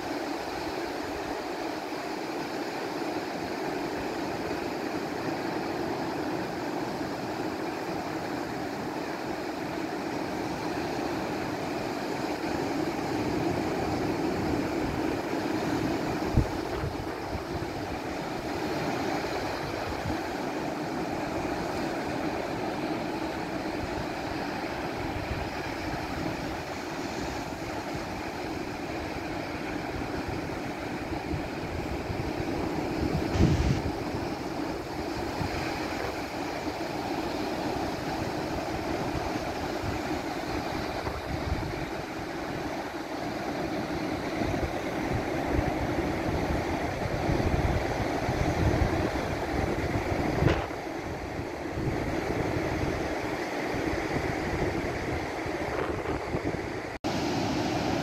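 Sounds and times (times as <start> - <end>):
surf breaking on beach: 0.0 - 58.0
wind buffeting microphone: 13.2 - 42.8, 44.1 - 57.0.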